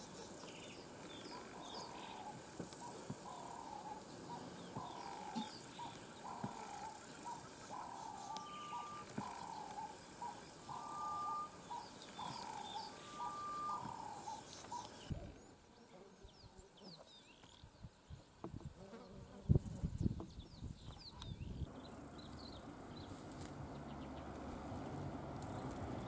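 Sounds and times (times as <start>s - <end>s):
higher bird chirps: 0.1s - 15.1s
bird calling low slurred notes: 1.3s - 15.4s.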